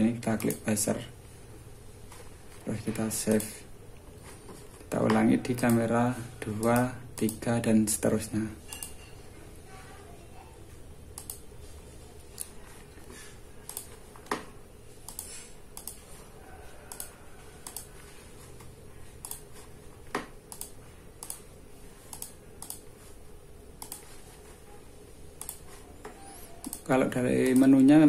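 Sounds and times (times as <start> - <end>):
faint steady hum: 0.0 - 28.0
computer mouse clicking: 0.3 - 0.7, 3.0 - 3.6, 6.5 - 7.5, 11.1 - 11.5, 12.3 - 16.1, 16.9 - 17.9, 18.6 - 23.0, 23.8 - 24.2, 25.4 - 27.9.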